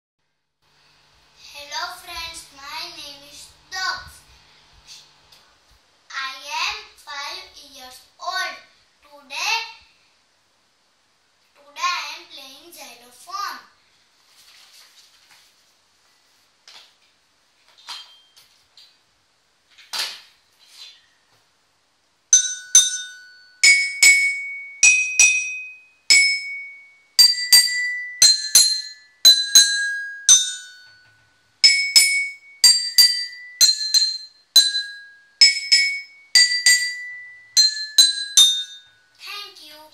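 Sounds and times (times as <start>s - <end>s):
soft taps and rustles: 14.2s - 19.0s
toy xylophone notes: 22.3s - 39.2s.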